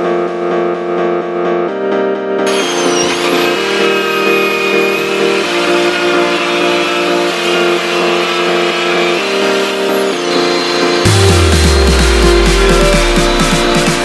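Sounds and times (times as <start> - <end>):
angle grinder grinding metal: 2.5 - 14.0.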